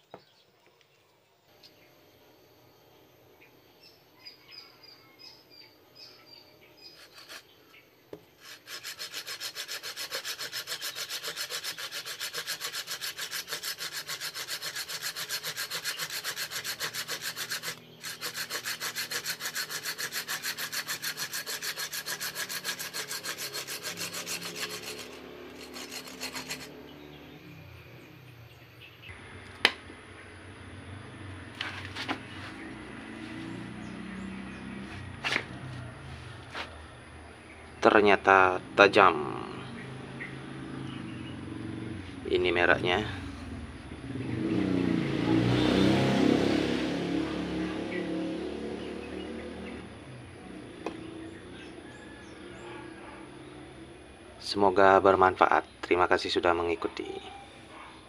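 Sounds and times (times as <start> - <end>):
saw cutting through branch: 6.8 - 7.6, 8.2 - 27.1.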